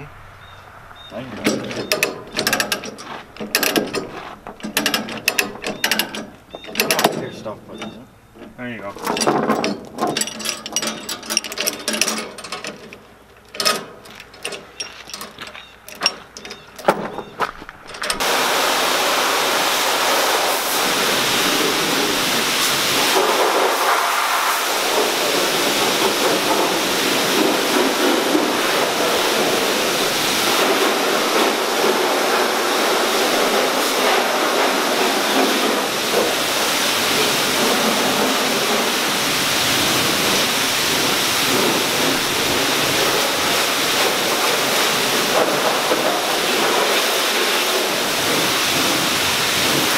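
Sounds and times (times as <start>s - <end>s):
ratchet chain binder clicks: 1.4s - 17.2s, 17.8s - 18.2s
pressure washer spraying water: 18.1s - 49.9s.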